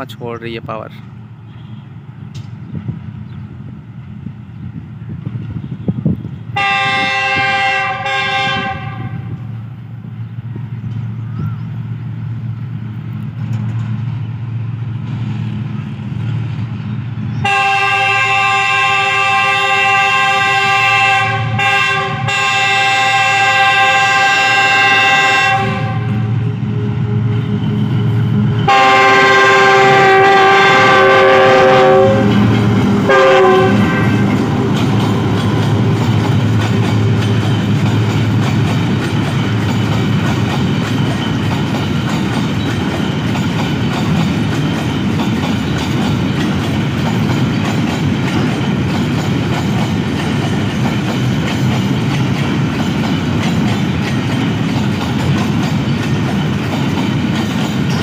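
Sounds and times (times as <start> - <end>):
freight wagon wheels on rail: 0.0 - 58.0
locomotive horn blasts: 1.5 - 2.0, 6.6 - 9.4, 17.4 - 26.6, 28.6 - 32.5, 33.1 - 34.4.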